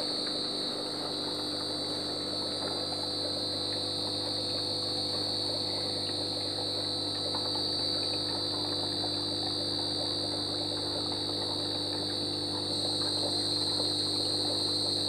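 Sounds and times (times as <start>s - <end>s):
crickets trilling: 0.0s - 15.0s
low electrical hum: 0.0s - 15.0s.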